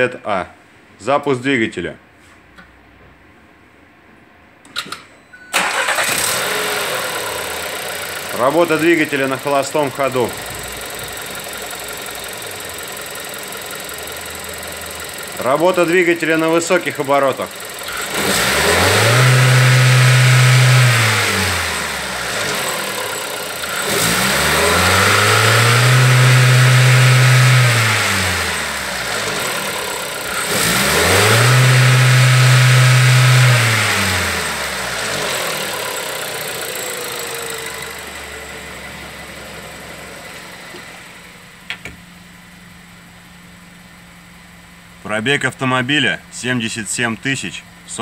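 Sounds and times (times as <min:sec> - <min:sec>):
car engine revving: 0:05.6 - 0:41.3.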